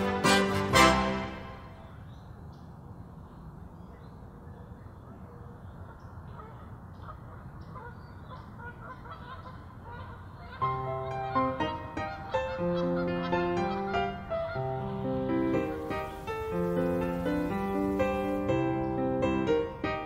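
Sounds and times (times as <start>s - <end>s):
music: 0.0s - 1.8s, 10.6s - 20.0s
steady low hiss: 0.0s - 20.0s
faint bird calls: 1.6s - 19.2s.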